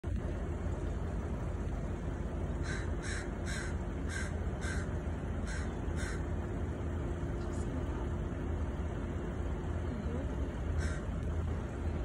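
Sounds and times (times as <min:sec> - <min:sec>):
steady low hum: 0:00.0 - 0:12.0
crow cawing: 0:02.6 - 0:06.3, 0:10.8 - 0:11.1.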